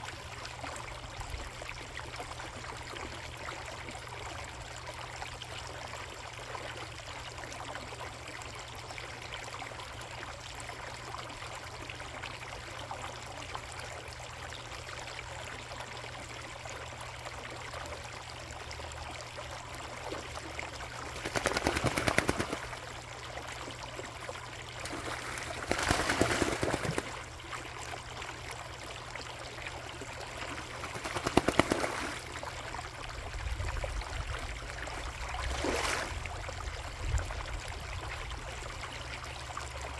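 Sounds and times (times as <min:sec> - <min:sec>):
pond water trickling: 0:00.0 - 0:39.9
fast splashing bursts: 0:21.0 - 0:22.9, 0:24.8 - 0:27.4, 0:30.5 - 0:32.4.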